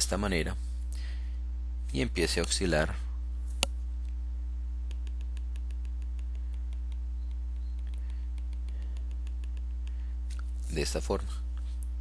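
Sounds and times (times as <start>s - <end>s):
steady low hum: 0.0s - 12.0s
stylus tapping on screen: 4.8s - 10.0s.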